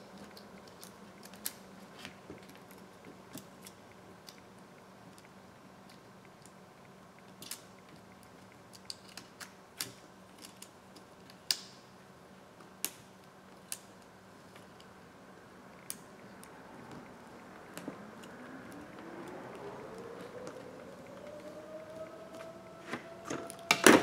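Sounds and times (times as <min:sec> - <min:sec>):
faint steady hum: 0:00.0 - 0:24.0
faint rising tone: 0:17.1 - 0:23.9.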